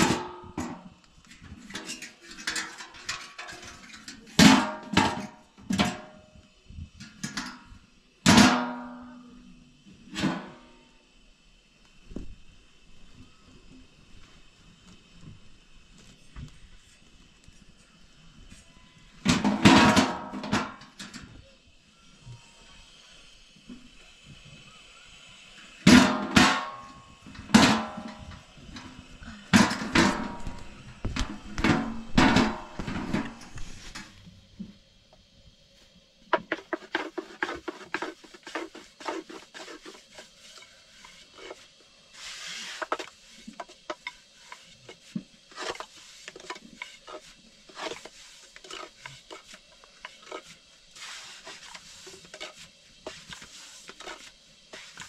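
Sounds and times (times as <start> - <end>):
metal griddle clanking: 19.3 - 21.3, 25.9 - 28.9, 29.5 - 34.1.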